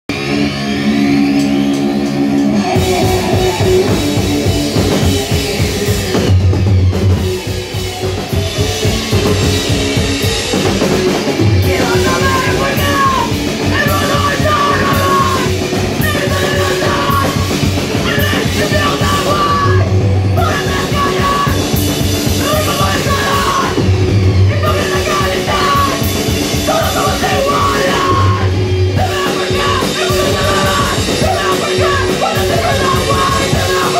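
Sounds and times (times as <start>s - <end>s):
bass guitar: 0.0s - 33.9s
drum kit: 0.1s - 33.9s
electric guitar: 0.1s - 33.9s
person singing: 2.4s - 5.5s, 11.5s - 21.8s, 22.4s - 23.9s, 24.5s - 33.9s.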